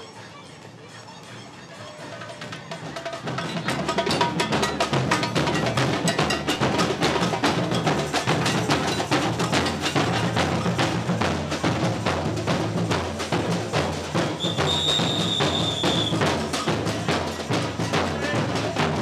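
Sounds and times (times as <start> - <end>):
samba drums: 0.0 - 19.0
high whistle note: 14.4 - 16.2.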